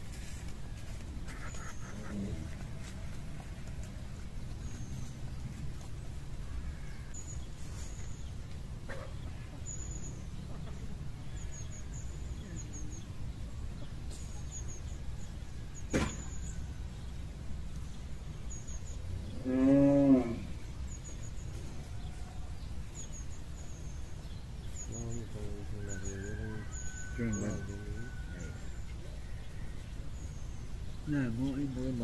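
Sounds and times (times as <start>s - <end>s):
small birds chirping: 0.0s - 32.0s
sharp knock: 15.9s - 16.3s
cow mooing: 19.4s - 20.6s.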